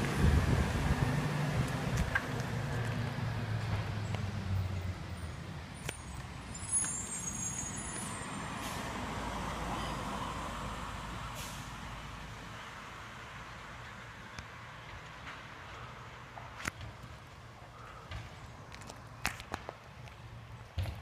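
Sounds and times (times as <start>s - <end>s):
garbage truck diesel engine: 0.0s - 14.0s
air brake hiss: 7.1s - 9.0s, 11.3s - 11.8s.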